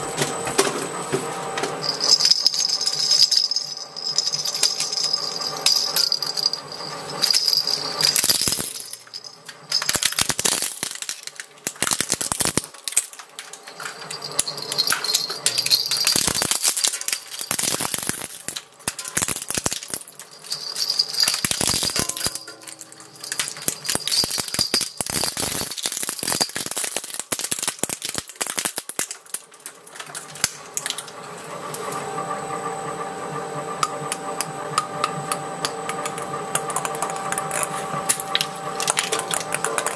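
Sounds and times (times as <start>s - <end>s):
shredder humming: 0.0s - 24.4s, 29.6s - 39.9s
rattle beads jingling: 1.8s - 12.8s, 13.6s - 29.0s
shredder crunching plastic: 9.8s - 31.2s, 36.5s - 39.9s.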